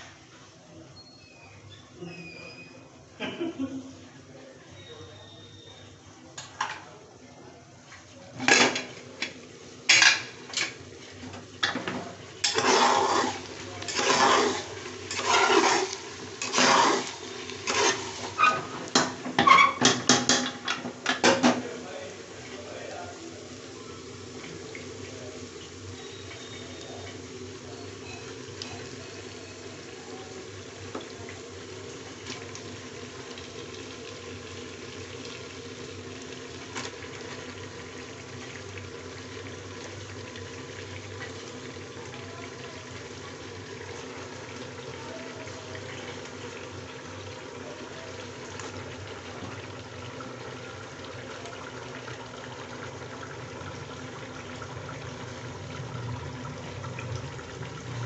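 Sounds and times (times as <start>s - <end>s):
meat sizzling in hot oil: 8.4s - 58.0s.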